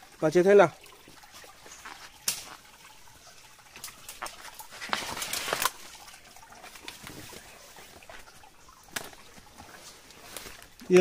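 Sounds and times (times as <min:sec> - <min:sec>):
twigs snapping: 0:01.8 - 0:02.6.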